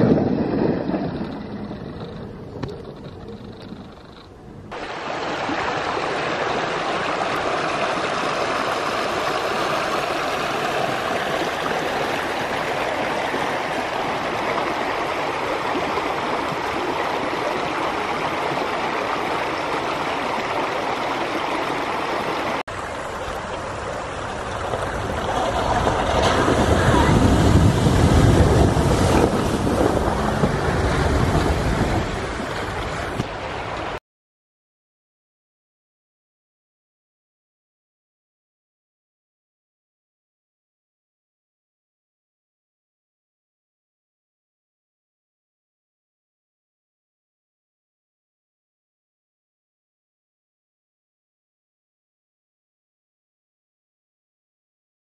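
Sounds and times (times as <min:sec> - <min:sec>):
creek flowing over stones: 0:04.7 - 0:34.0.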